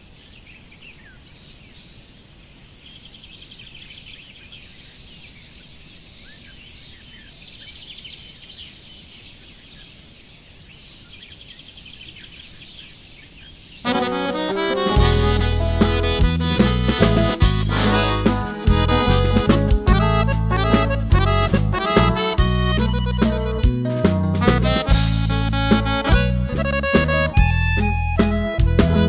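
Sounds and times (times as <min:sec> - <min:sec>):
birds chirping and trilling: 0:00.0 - 0:14.2.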